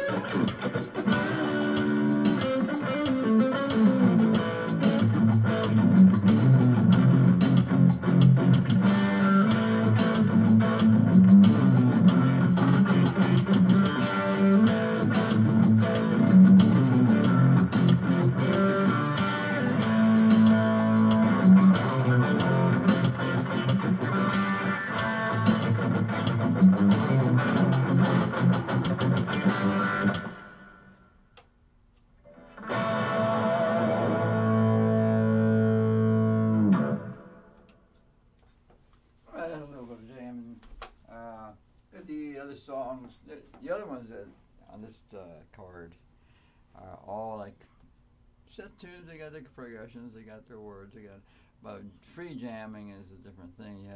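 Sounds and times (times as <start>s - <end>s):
drum machine groove: 0.0s - 31.0s
distorted electric guitar: 0.0s - 31.1s, 32.2s - 37.7s.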